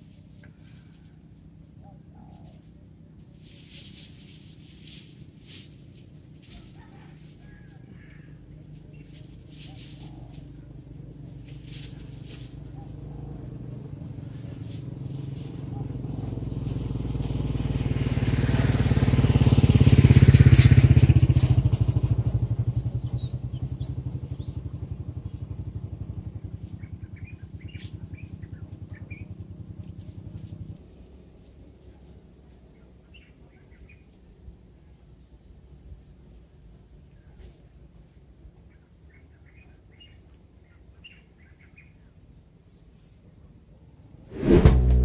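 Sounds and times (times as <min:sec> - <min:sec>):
motorcycle passing: 0:08.0 - 0:30.8, 0:44.2 - 0:45.0.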